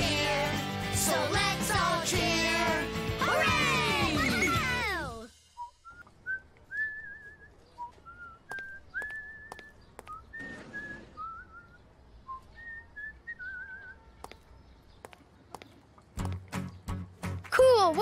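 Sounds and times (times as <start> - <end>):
person whistling a tune: 5.5 - 14.0.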